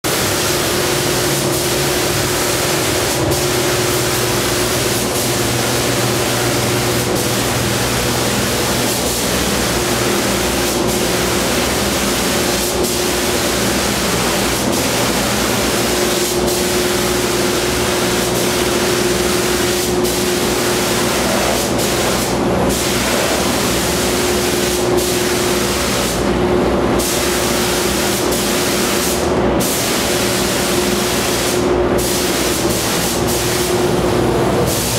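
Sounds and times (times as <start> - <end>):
steady hum: 0.0 - 34.9
paint spray gun hissing: 0.1 - 26.3, 27.0 - 34.0.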